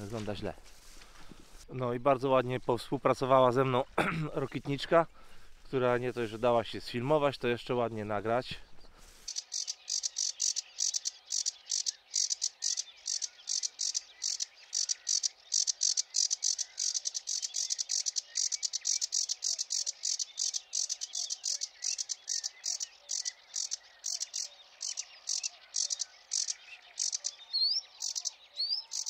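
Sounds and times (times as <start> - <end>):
soft varied bird song: 1.3 - 29.0
high buzzing bird song: 5.8 - 29.0.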